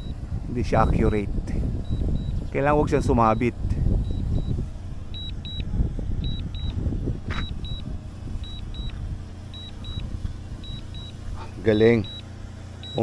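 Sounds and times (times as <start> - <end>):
low rumble: 0.0 - 13.0
high double beep: 3.3 - 10.0, 10.6 - 12.2.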